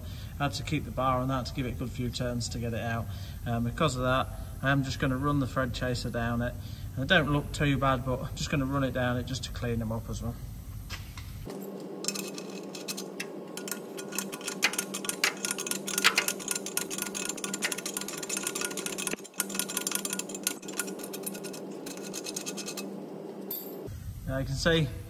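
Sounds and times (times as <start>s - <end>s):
steady low hum: 0.0s - 25.0s
ratchet clicking: 12.0s - 23.9s.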